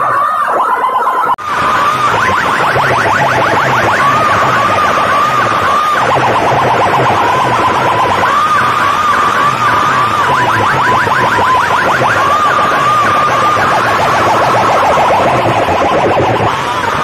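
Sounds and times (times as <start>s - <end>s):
warbling siren tone over loudspeakers: 0.0s - 17.0s
fast rattling pulse: 1.5s - 17.0s.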